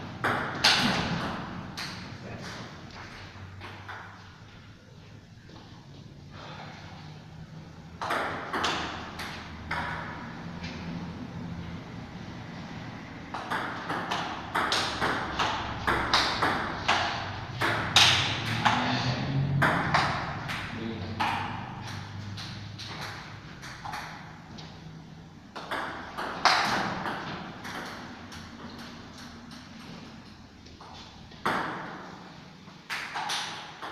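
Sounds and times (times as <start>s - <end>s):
table tennis ball rally: 0.0s - 2.8s, 7.9s - 10.6s, 13.2s - 24.4s, 25.5s - 30.0s, 30.8s - 32.1s, 32.9s - 33.9s.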